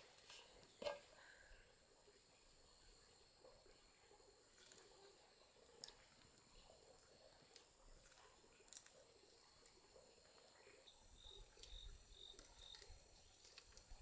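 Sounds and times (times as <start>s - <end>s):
insects trilling: 8.6s - 14.0s.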